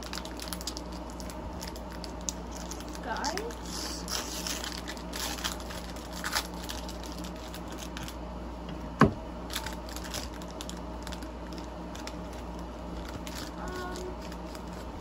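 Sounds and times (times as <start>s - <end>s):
packaging crinkling: 0.0s - 8.2s, 9.5s - 15.0s.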